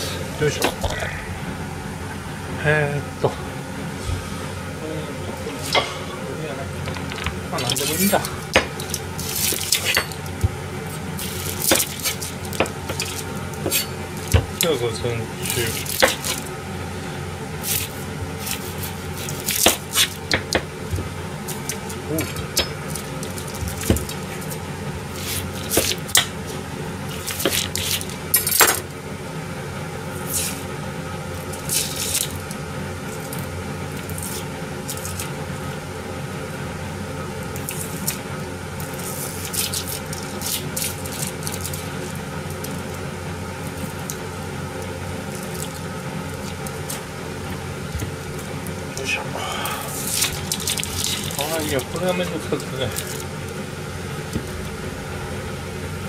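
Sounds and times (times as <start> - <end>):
steady kitchen hum: 0.0 - 56.0
dry rustles of onion skins: 10.5 - 16.5, 17.5 - 28.3, 30.2 - 35.4, 37.6 - 48.9, 49.8 - 53.6.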